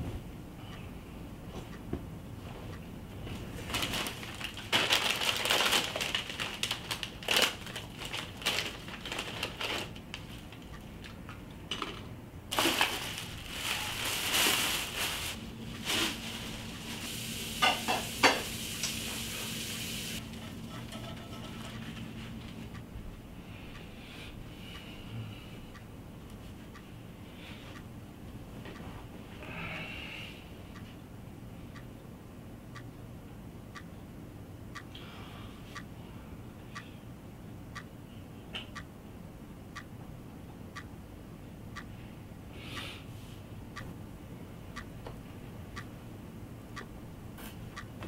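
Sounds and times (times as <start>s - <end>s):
plastic bag crinkling: 3.6s - 11.2s, 12.5s - 17.2s.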